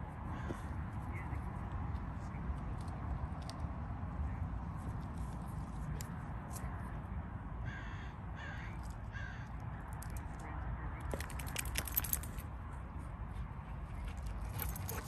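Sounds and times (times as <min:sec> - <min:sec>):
bird cawing: 0:00.3 - 0:00.7, 0:07.6 - 0:09.6.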